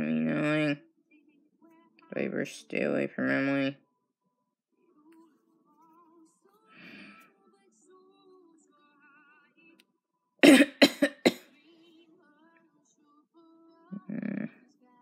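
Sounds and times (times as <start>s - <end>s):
faint singing music: 0.0s - 15.0s
person coughing: 10.4s - 11.4s.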